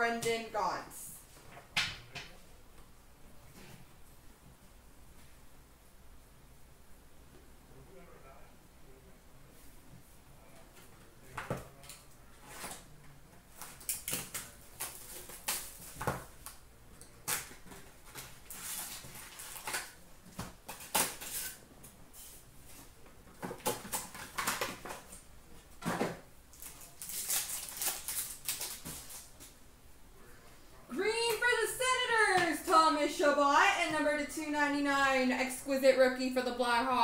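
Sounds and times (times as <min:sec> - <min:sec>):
wrappers crinkling: 0:26.5 - 0:29.5.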